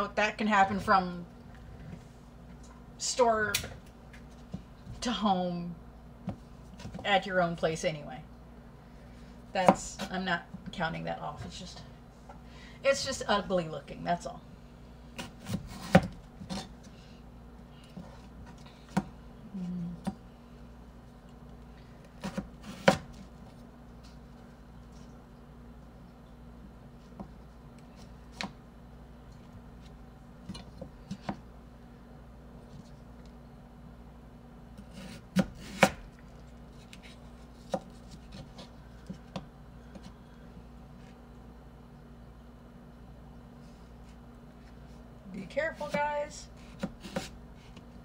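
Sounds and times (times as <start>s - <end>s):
knife slicing potato: 22.1s - 23.2s, 34.8s - 36.1s, 45.8s - 47.9s.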